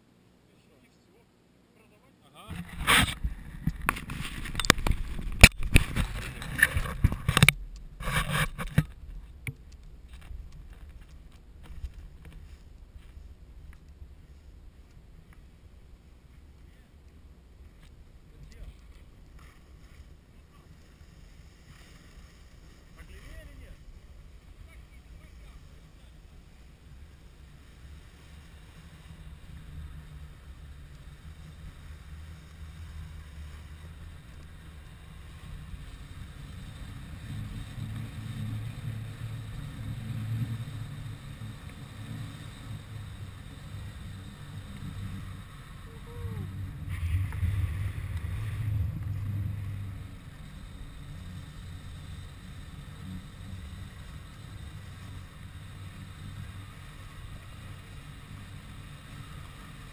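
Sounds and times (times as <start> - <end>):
wind rushing over microphone: 2.5 - 15.3, 42.9 - 50.8
sliding over snow: 2.6 - 59.9.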